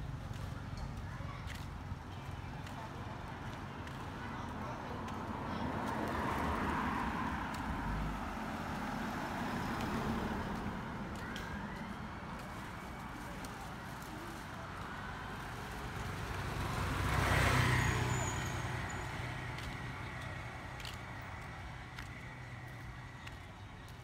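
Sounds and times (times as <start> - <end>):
road vehicles passing: 0.0 - 24.0.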